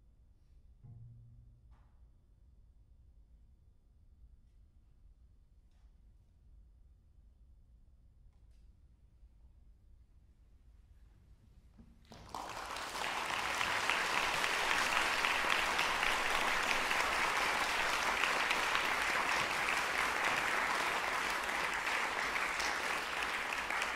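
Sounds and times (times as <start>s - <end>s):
audience applause: 12.1s - 23.9s.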